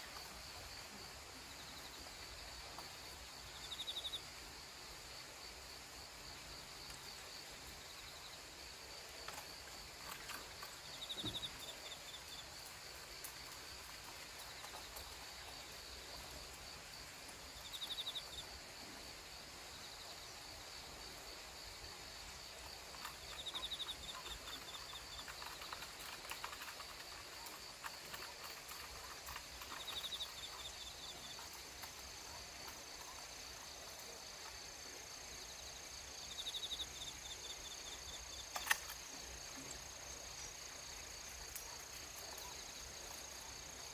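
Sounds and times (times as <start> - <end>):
insects chirring: 0.0 - 43.9
faint clicks and rustles: 8.6 - 17.7, 22.4 - 36.9, 37.7 - 43.9.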